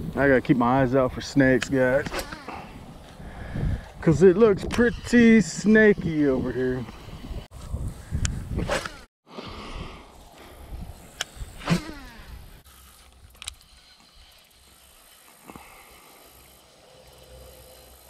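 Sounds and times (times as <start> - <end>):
wind rumble on microphone: 1.9 - 9.1, 9.7 - 12.6
fishing reel winding: 11.0 - 15.5.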